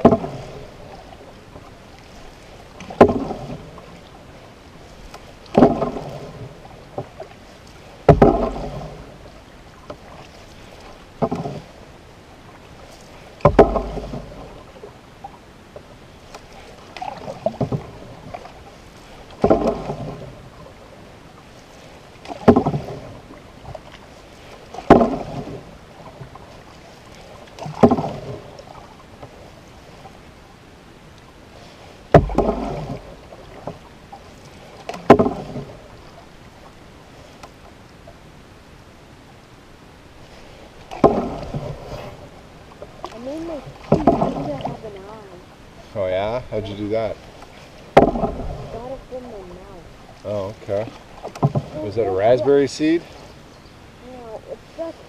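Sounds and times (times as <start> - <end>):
canoe paddle knock: 0.0 - 4.2, 4.8 - 11.8, 12.5 - 21.0, 22.2 - 30.1, 32.1 - 36.7, 40.8 - 45.1, 45.7 - 49.1, 49.8 - 53.4
paddle splashing water: 0.0 - 55.0.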